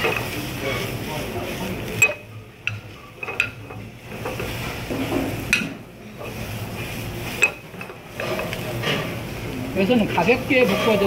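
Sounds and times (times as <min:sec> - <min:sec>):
ladle stirring vegetables in pan: 0:00.0 - 0:11.0
ladle clinking against pan: 0:02.0 - 0:03.6, 0:07.4 - 0:09.0.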